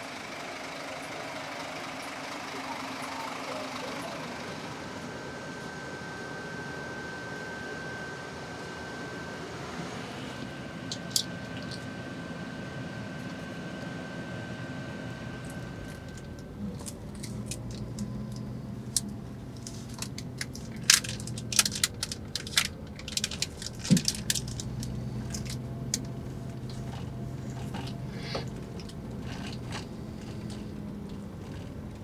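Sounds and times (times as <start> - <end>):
bus engine drone: 0.0 - 32.0
sharp crackling clicks: 16.1 - 27.0.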